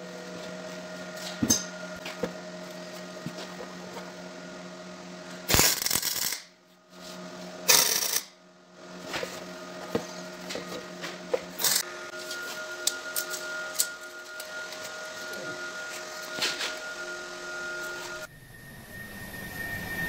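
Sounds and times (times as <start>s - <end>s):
steady hum: 0.0s - 20.0s
welding crackle: 5.5s - 6.5s.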